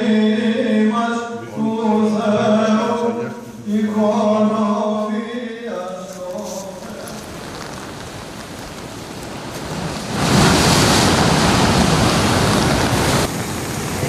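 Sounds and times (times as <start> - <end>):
rough surf breaking: 6.1 - 14.0
wind noise: 6.3 - 14.0.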